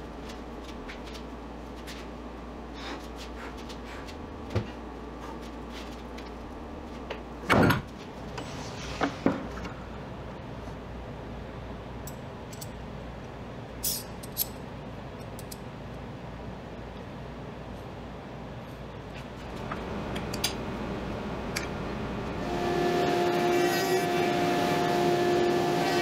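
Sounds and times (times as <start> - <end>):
low hum: 19.5 - 26.0.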